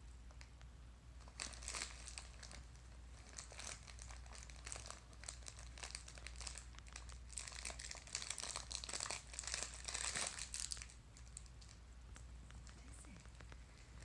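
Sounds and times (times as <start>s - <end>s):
wrapping paper crinkling: 1.2s - 11.8s.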